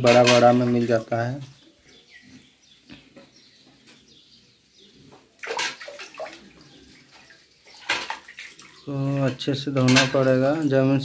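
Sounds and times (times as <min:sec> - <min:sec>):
water splashing in a metal bucket: 0:00.0 - 0:01.3, 0:05.4 - 0:11.0.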